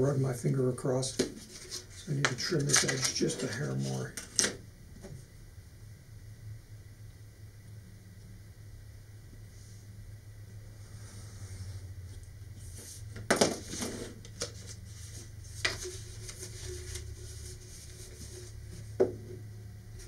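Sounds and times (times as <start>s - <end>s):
steady low hum: 0.0s - 20.0s
paper rustling: 1.2s - 4.5s, 12.6s - 18.8s.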